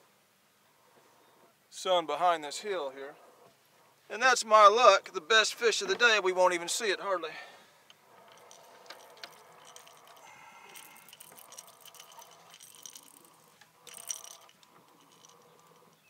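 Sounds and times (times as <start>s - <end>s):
fishing gear rattling and clicking: 7.8s - 16.0s.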